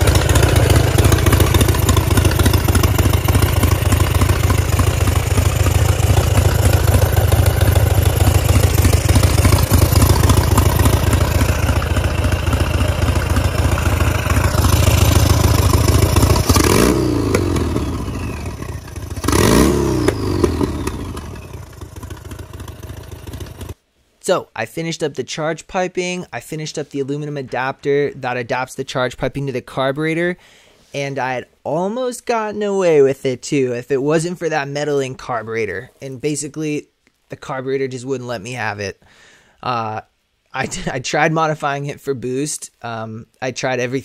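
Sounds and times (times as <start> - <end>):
engine revving: 0.0 - 23.8
motorcycle engine running: 0.0 - 23.8.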